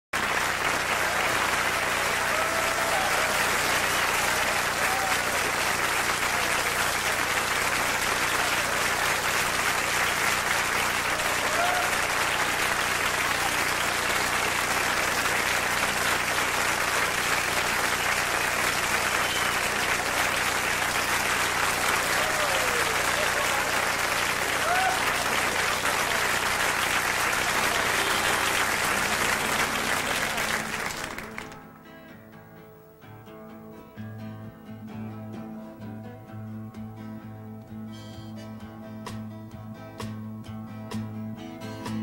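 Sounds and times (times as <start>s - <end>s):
audience applauding: 0.2s - 31.7s.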